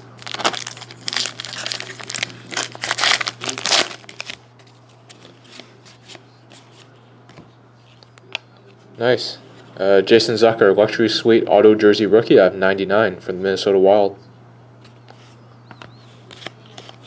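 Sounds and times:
foil wrapper tearing and crinkling: 0:00.0 - 0:04.4.

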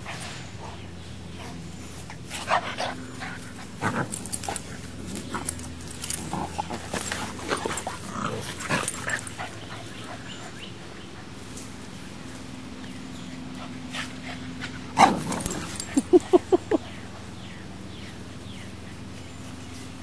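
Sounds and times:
dogs growling and yipping: 0:02.2 - 0:11.4, 0:13.3 - 0:18.0.

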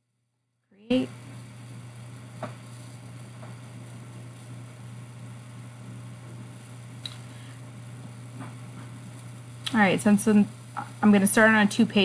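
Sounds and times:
background hiss: 0:00.8 - 0:12.0
low hum: 0:00.8 - 0:12.0
faint clicks: 0:07.0 - 0:07.3.

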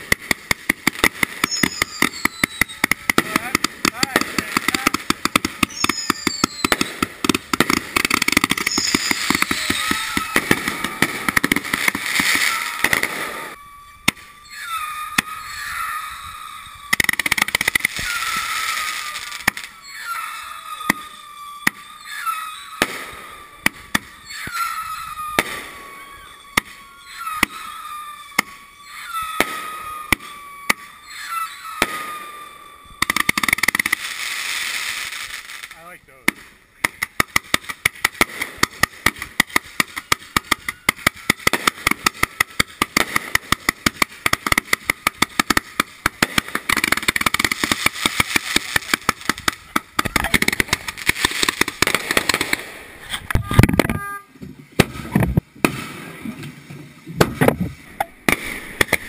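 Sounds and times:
fireworks bangs and crackling: 0:00.0 - 0:59.0
whistling fireworks with pops: 0:00.0 - 0:59.0.

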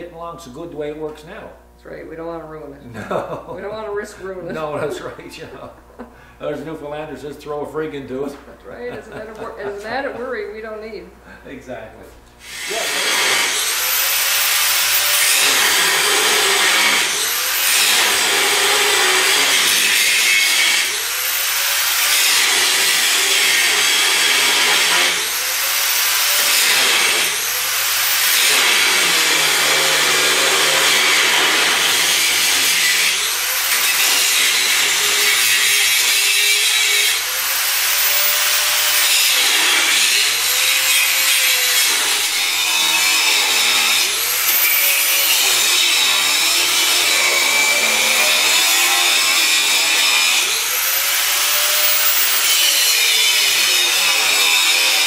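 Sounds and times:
angle grinder grinding steel: 0:12.4 - 0:55.0.

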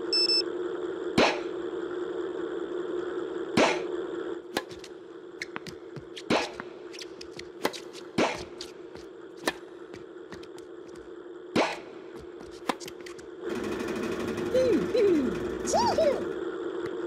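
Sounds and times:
ball machine humming: 0:03.6 - 0:17.0
racket hitting tennis balls: 0:04.5 - 0:11.0, 0:11.6 - 0:13.2
balls bouncing on court: 0:04.6 - 0:13.3.

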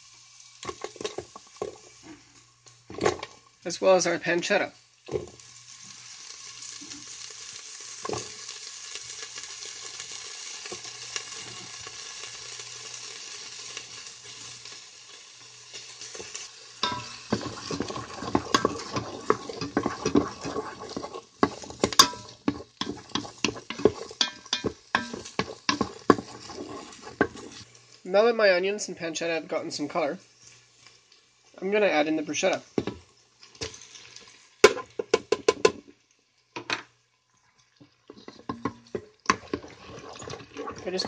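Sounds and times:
food sizzling in hot oil: 0:00.0 - 0:41.0
utensil scraping and clicking on pot: 0:16.2 - 0:27.7, 0:38.1 - 0:41.0.

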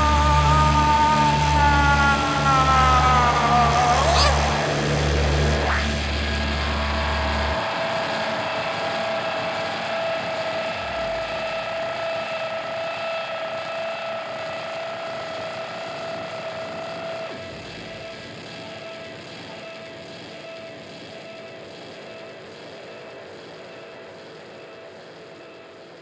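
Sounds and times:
low bass drone: 0:00.0 - 0:12.2
dense wash of noise: 0:00.0 - 0:18.3.

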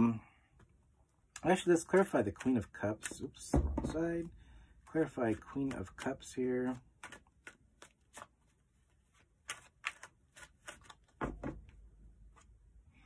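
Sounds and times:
cards shuffling clicks: 0:01.9 - 0:03.4, 0:04.9 - 0:11.2.

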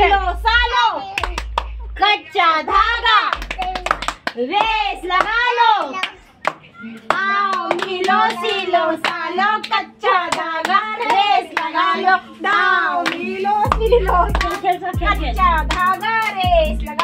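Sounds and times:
women singing: 0:00.0 - 0:01.4, 0:02.0 - 0:03.6, 0:04.3 - 0:17.0
low rumble: 0:00.0 - 0:02.1
hand claps: 0:01.2 - 0:01.8, 0:02.7 - 0:11.7, 0:13.0 - 0:14.7.

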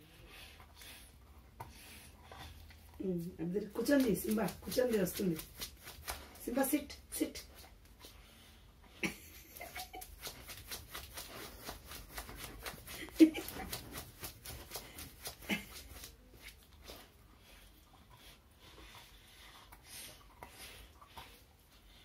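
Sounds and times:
dog sniffing: 0:09.5 - 0:22.0.

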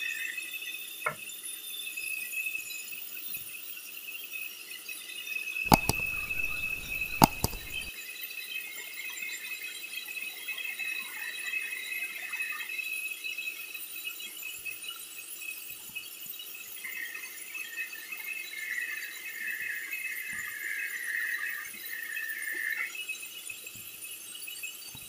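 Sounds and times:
wood knocking on steel table: 0:05.7 - 0:07.9.

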